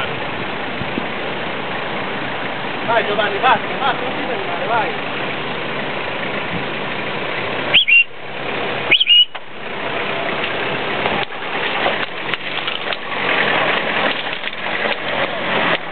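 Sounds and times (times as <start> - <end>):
engine running at low speed: 0.0 - 15.9
noisy wash: 0.0 - 15.9
short high chirps: 7.7 - 8.1, 8.9 - 9.4.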